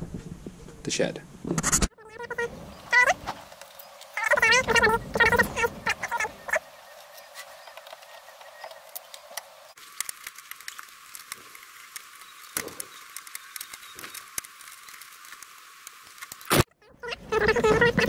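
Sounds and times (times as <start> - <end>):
steady hiss: 2.4 - 16.7.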